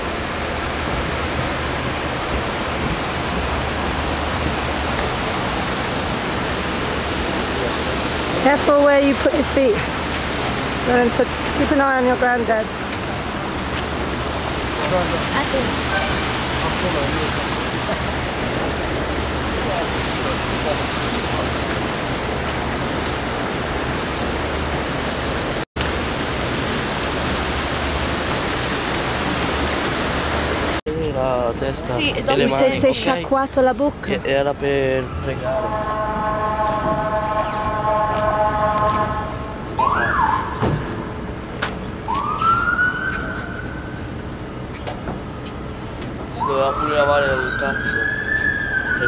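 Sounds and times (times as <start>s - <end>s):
steady rushing noise: 0.0s - 39.8s
siren wail: 35.2s - 41.0s, 42.0s - 44.0s, 46.4s - 49.0s.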